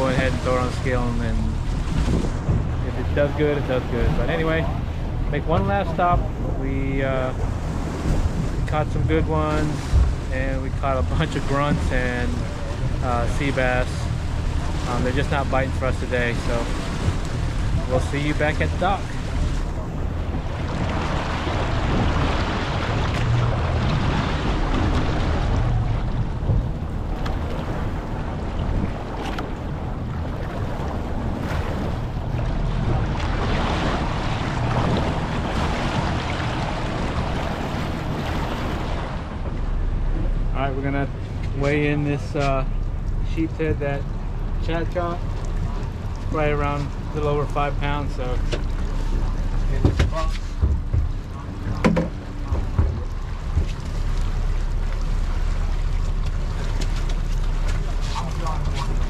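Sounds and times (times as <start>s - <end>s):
wind buffeting microphone: 0.0s - 47.1s
low boat engine drone: 0.0s - 59.0s
outboard motors idling: 0.0s - 59.0s
water rushing past hull: 0.0s - 59.0s
cooler knocks: 49.8s - 53.8s.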